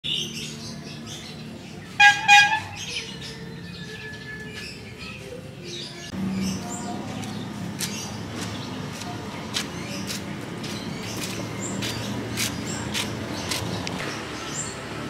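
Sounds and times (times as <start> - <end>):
birds chirping: 0.0 - 15.0
low street hum: 0.0 - 15.0
short horn toots: 2.0 - 2.7.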